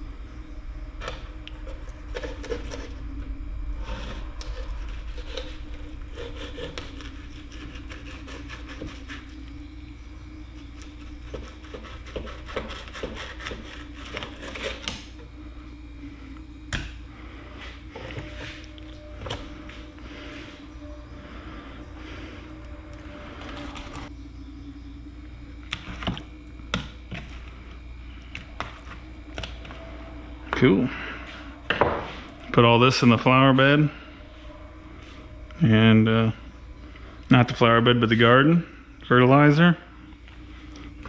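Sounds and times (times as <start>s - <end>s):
steady low hum: 0.0s - 41.0s
knife scraping on cutting board: 1.6s - 3.0s, 3.8s - 9.4s, 11.0s - 15.1s.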